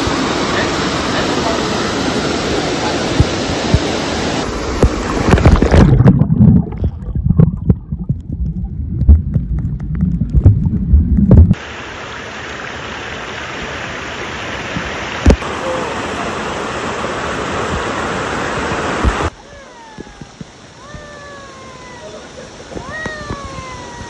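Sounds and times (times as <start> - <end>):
stream rushing over rocks: 0.0 - 6.2, 11.5 - 24.0
muffled underwater rumbling: 4.5 - 11.6.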